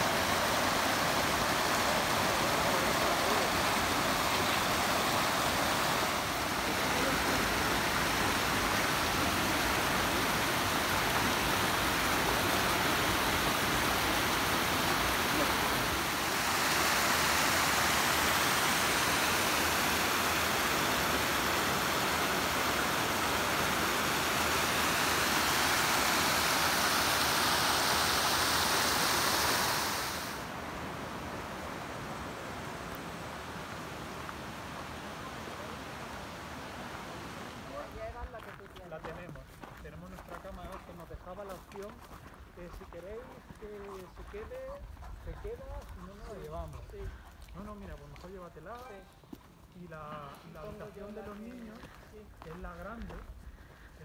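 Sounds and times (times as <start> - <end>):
stream rushing over rocks: 0.0 - 38.3.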